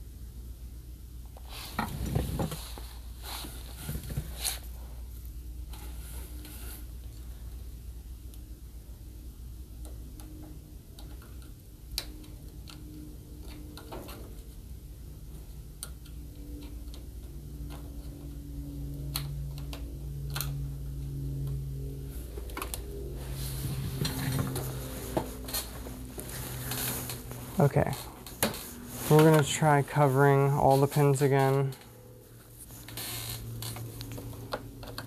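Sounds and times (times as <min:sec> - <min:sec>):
steady low hum: 0:00.0 - 0:35.0
small clicks and taps: 0:09.8 - 0:14.4.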